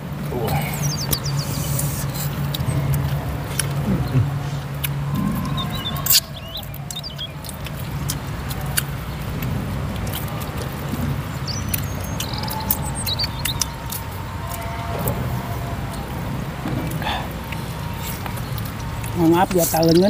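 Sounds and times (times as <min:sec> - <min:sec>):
steady low rumble: 0:00.0 - 0:20.0
wet lip-smacking: 0:00.4 - 0:14.7
chewing: 0:00.4 - 0:20.0.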